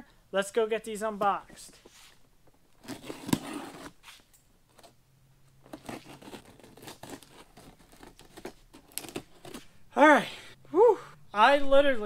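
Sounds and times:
blade slitting tape and cardboard: 0:02.8 - 0:04.9, 0:05.6 - 0:09.7.

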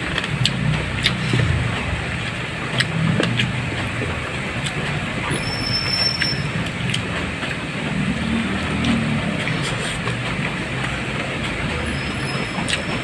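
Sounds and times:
chewing clicks and smacks: 0:00.0 - 0:03.6
steady rushing noise: 0:00.0 - 0:05.3, 0:06.4 - 0:11.9.

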